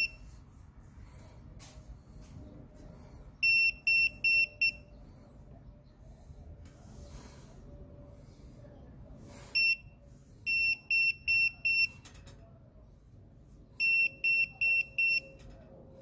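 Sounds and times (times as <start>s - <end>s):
voltage detector beeping: 0.0s - 0.2s, 3.4s - 4.9s, 13.8s - 15.4s.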